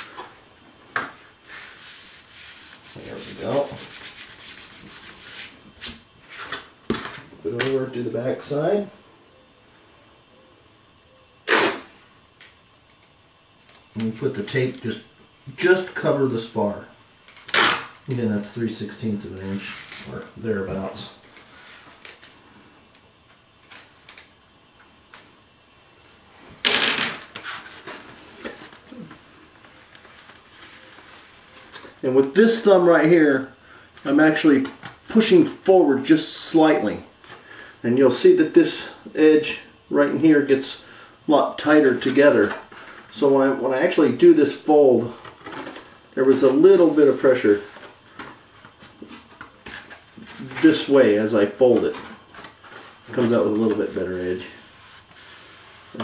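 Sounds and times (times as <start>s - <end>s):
fingers rubbing tape on foam: 1.5s - 6.0s, 11.5s - 11.8s, 54.6s - 56.0s.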